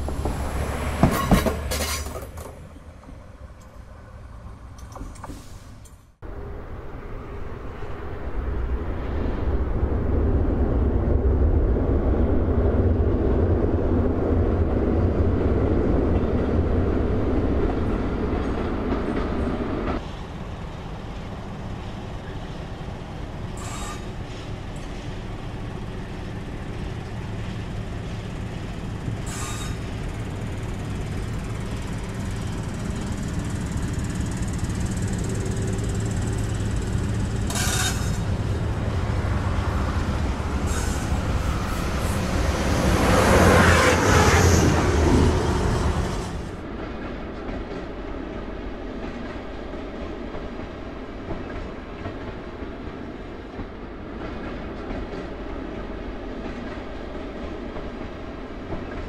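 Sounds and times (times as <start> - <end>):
diesel railcar running: 0.0 - 9.8, 10.6 - 59.0
road traffic: 0.0 - 47.2
high wheel squeals: 23.6 - 24.2, 29.2 - 29.9.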